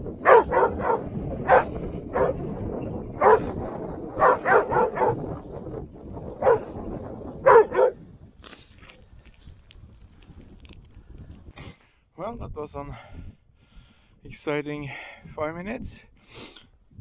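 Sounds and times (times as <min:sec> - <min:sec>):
small dog barking: 0:00.2 - 0:02.4, 0:03.2 - 0:03.6, 0:04.2 - 0:05.3, 0:06.4 - 0:06.8, 0:07.4 - 0:08.0.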